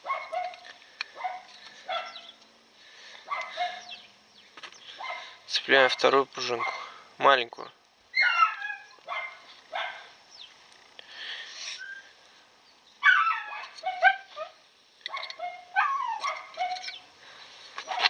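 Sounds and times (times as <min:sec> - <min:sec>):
dog whining and yelping: 0:08.2 - 0:10.1, 0:13.0 - 0:17.0.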